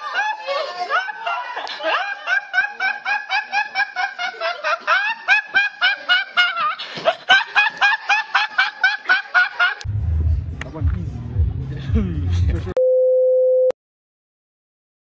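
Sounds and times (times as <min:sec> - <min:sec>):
boy laughing hard: 0:00.0 - 0:09.9.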